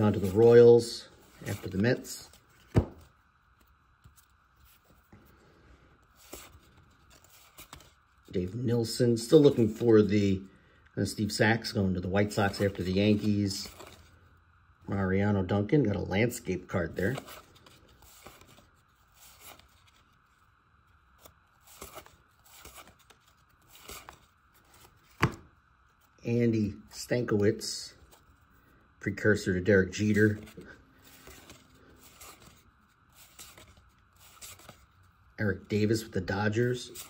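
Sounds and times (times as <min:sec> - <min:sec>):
cardboard cards rustling and clicking: 0:00.0 - 0:05.3, 0:06.1 - 0:09.9, 0:12.2 - 0:14.3, 0:16.8 - 0:26.2, 0:30.0 - 0:37.0
faint papery swishes of cards: 0:21.1 - 0:26.1, 0:30.1 - 0:35.3.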